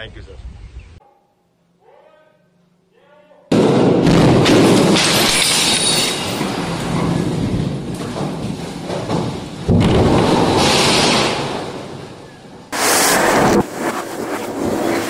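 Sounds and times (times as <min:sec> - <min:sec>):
loud blast: 0:03.5 - 0:07.7, 0:09.7 - 0:15.0
structure crashing down: 0:03.5 - 0:13.9
concrete breaking and falling: 0:04.3 - 0:12.1.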